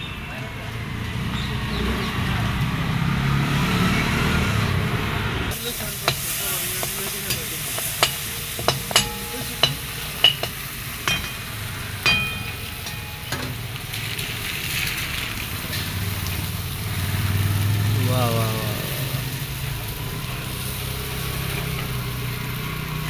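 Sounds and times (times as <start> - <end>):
food sizzling in oil: 5.5 - 23.0
metal spatula clinking on pan: 6.0 - 14.0.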